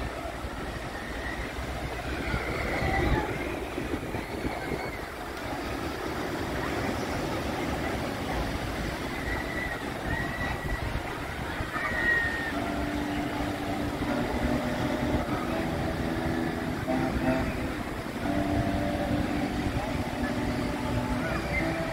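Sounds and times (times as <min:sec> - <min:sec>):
faint voices: 0:00.0 - 0:21.9
low multi-tone hum: 0:00.0 - 0:21.9.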